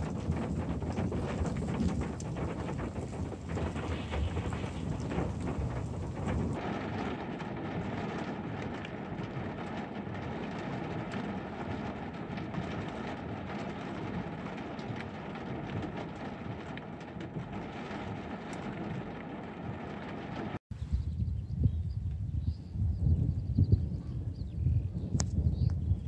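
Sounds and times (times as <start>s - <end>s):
rain on car windscreen: 0.0s - 20.6s
windscreen wipers running: 0.0s - 20.6s
steady low rumble: 0.0s - 26.0s.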